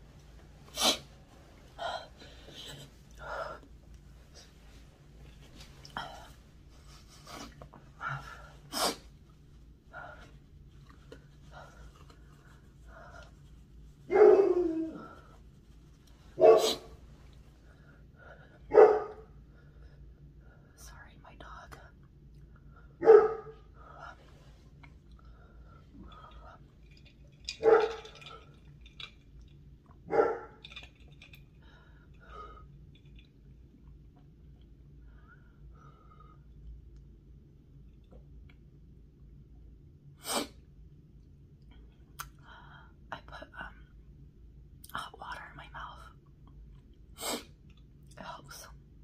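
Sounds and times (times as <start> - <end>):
sipping through a straw: 0.7 - 1.1.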